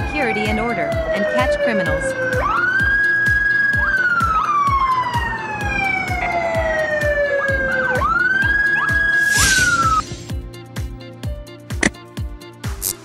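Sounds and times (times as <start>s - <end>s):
police siren wailing: 0.0s - 10.3s
music with a steady beat: 0.0s - 13.0s.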